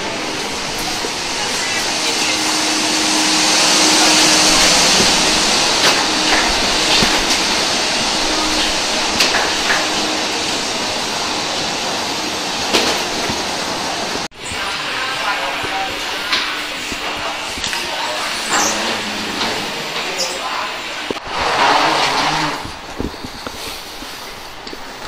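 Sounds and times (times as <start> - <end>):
aircraft ground machinery rushing: 0.0 - 14.3.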